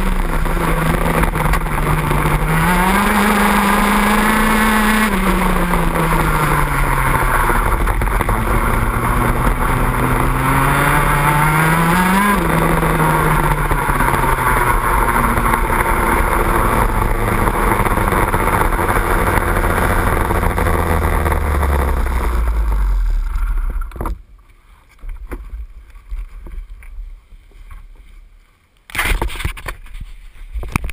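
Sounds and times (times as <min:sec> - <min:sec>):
loud rush of noise: 0:00.0 - 0:24.0
kart engine running low revs: 0:00.0 - 0:24.1.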